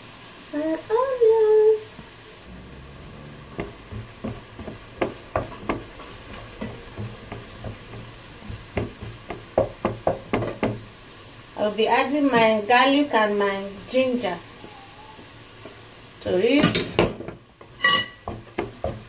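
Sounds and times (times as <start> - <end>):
spatula scraping frying pan: 2.5 - 11.0, 16.8 - 19.0.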